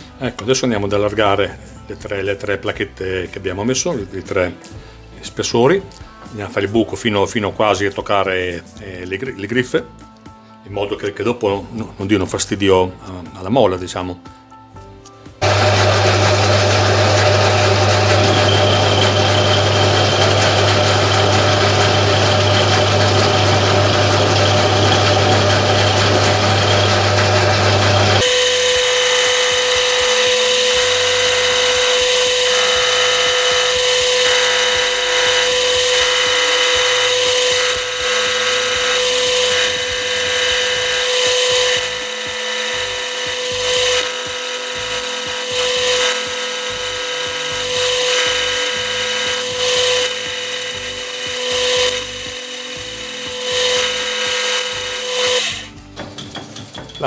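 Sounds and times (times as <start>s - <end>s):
metal lathe running: 15.4s - 55.5s
boring tool scraping metal: 28.7s - 55.4s.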